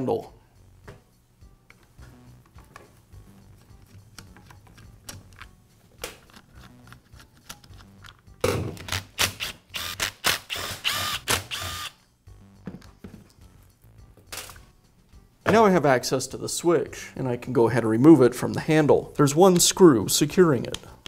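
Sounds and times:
cordless drill whirring: 9.7s - 12.0s.

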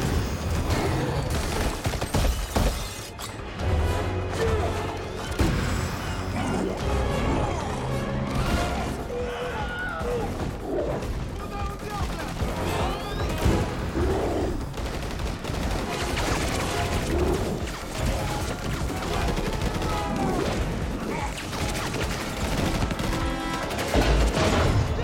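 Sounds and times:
rapid rifle gunfire: 1.2s - 2.4s, 9.3s - 24.9s.

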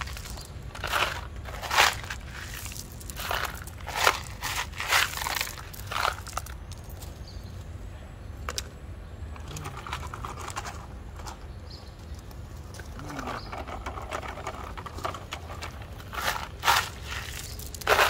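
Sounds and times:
toy shovel scraping gravel: 0.0s - 7.2s, 12.6s - 18.0s
gravel crunching: 0.0s - 18.0s.

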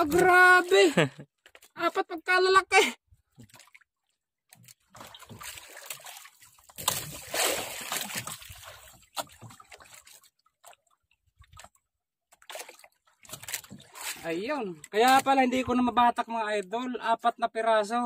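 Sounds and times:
water splashing against boat hull: 0.0s - 0.8s, 3.2s - 15.9s.

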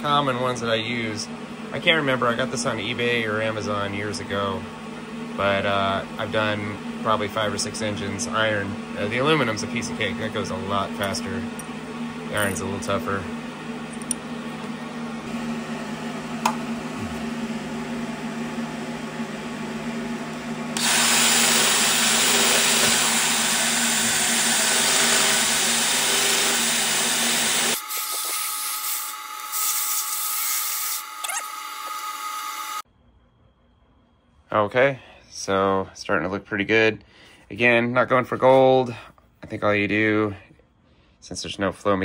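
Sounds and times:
rotary grinder grinding iron: 20.8s - 32.8s.

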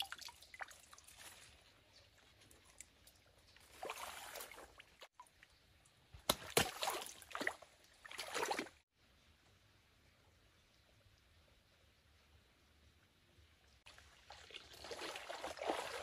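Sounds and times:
water splashing in a stream: 0.0s - 1.9s, 2.6s - 5.4s, 6.2s - 8.9s, 13.9s - 16.0s.

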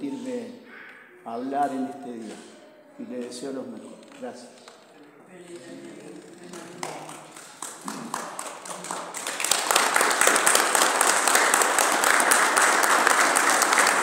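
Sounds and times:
audience applause: 6.5s - 14.0s.

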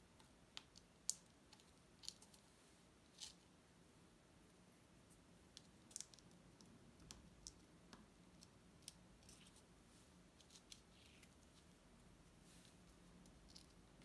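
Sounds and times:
faint clicks and light scratches: 0.1s - 2.5s, 12.5s - 14.0s.

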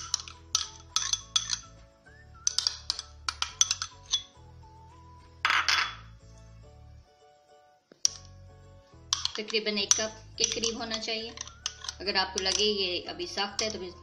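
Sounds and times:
metal spoon clinking glass bowl: 0.0s - 1.8s, 2.4s - 4.4s, 9.0s - 14.0s
background music: 0.0s - 14.0s.

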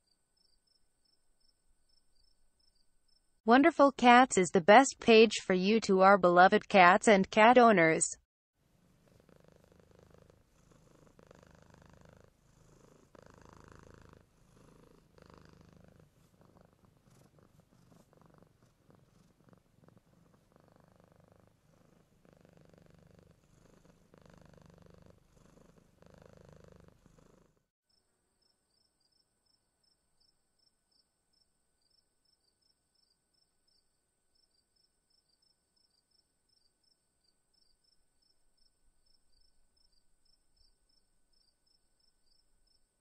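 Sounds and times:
crickets chirping: 0.0s - 3.3s, 27.9s - 42.9s
cat purring: 8.7s - 27.6s.

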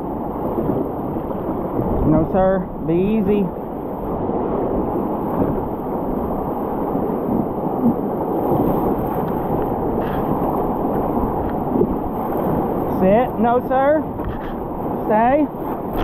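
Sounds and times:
whitewater rapids rushing: 7.5s - 16.0s.

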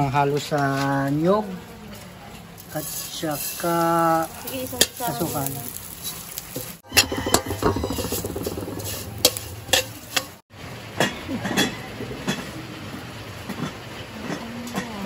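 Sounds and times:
metal spatula scraping wok: 2.7s - 10.4s.

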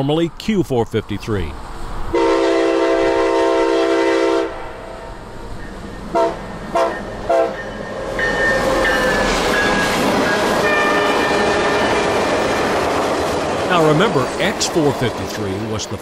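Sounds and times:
train rumbling past: 1.4s - 16.0s
locomotive air horn blasts: 2.1s - 4.8s, 6.1s - 7.6s.

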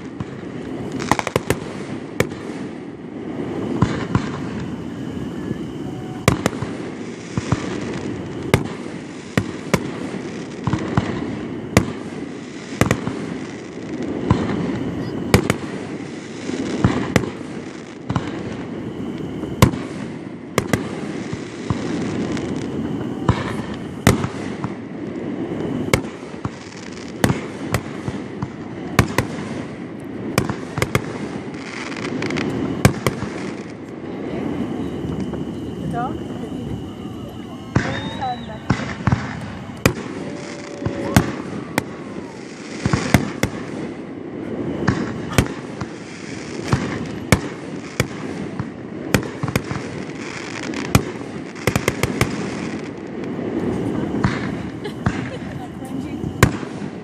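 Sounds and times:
fireworks bangs: 0.0s - 57.0s.

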